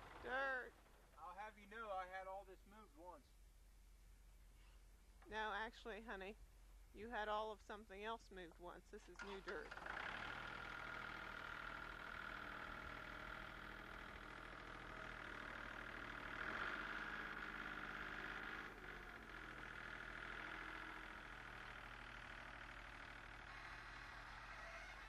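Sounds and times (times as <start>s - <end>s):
engine running: 0.0s - 1.3s, 9.2s - 25.0s.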